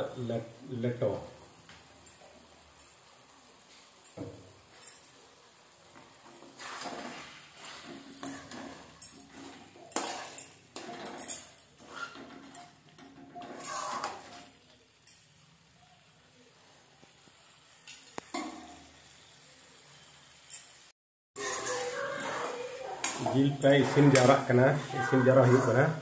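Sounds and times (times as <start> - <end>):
metal spoon scraping a pan: 6.1 - 14.7, 21.4 - 26.0.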